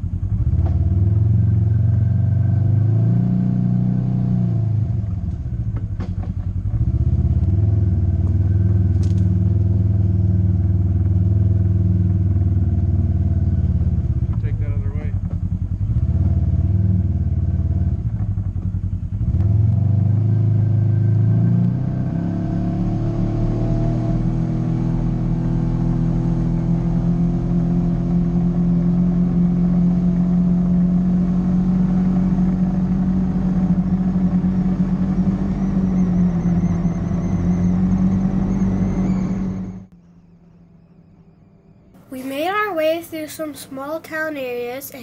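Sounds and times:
off-road vehicle engine revving: 0.0s - 45.0s.

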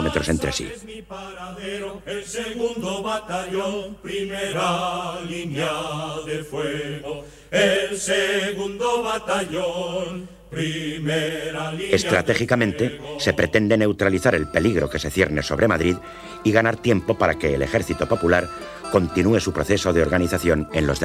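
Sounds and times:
low voices chanting in unison: 0.0s - 13.6s.

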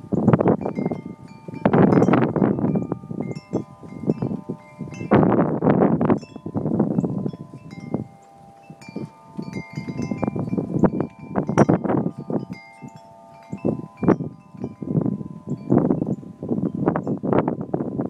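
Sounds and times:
wind chimes ringing: 0.0s - 18.0s
wind rumbling on microphone: 0.0s - 18.0s.

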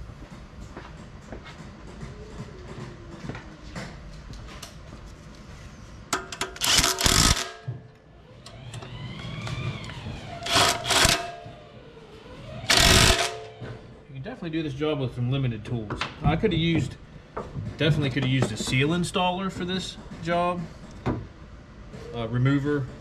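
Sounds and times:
power tool bursts: 6.4s - 7.8s, 10.4s - 11.5s, 12.7s - 13.6s.

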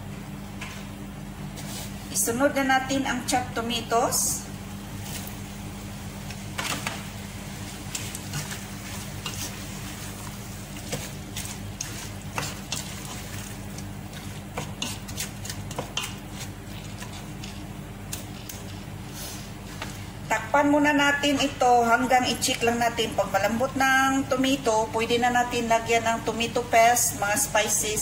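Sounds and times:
wooden spoon scraping a pot: 7.9s - 17.7s.

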